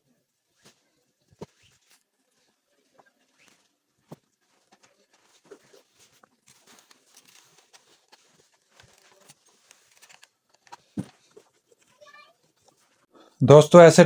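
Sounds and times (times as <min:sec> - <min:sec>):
hands smoothing fabric: 0:00.4 - 0:10.0.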